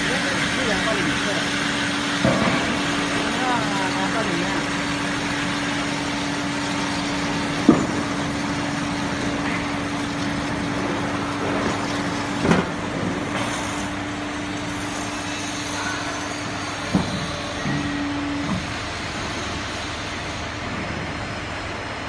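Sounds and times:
band saw humming: 0.0s - 20.7s
cutting and shop noise: 0.0s - 21.7s.

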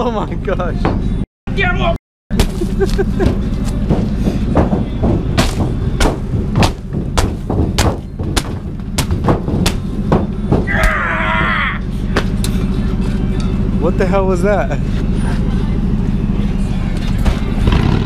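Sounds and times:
man yelling: 1.5s - 2.0s, 10.7s - 11.8s
boots stamping on windshield: 2.3s - 11.6s.

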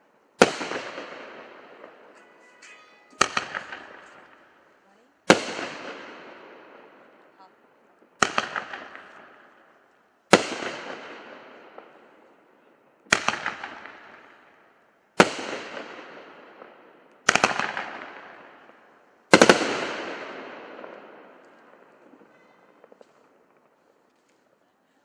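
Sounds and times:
fireworks bangs: 0.0s - 24.6s.

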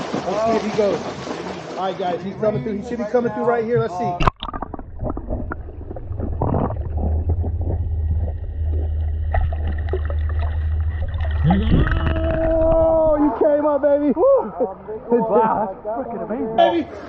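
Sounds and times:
water rush: 0.0s - 2.2s, 4.2s - 14.2s
underwater clicks and knocks: 3.7s - 13.1s
muffled underwater rumble: 4.2s - 16.0s.

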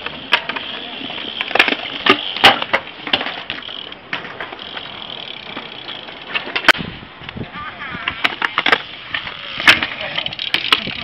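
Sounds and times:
bike tyres and frame knocking: 0.0s - 6.8s, 8.1s - 11.0s
bike landing on concrete: 0.0s - 6.9s
bike hub ratchet ticking: 3.5s - 4.0s, 4.6s - 6.3s, 8.9s - 11.0s.

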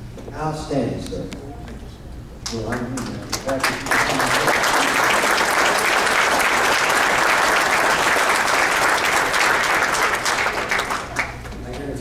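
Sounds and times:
crowd applauding: 2.7s - 11.6s.

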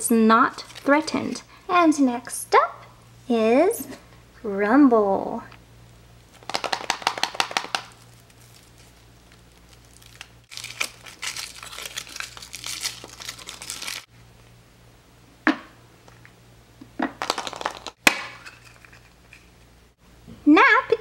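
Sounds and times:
foil wrapper crinkling: 0.5s - 1.4s, 6.2s - 14.1s
chocolate shell cracking: 6.3s - 14.1s.

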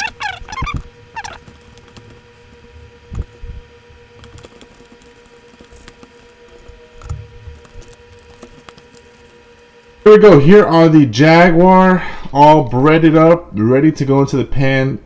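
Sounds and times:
fish squishing in breading: 0.0s - 2.6s, 4.2s - 10.0s
steady hum: 0.0s - 15.0s.

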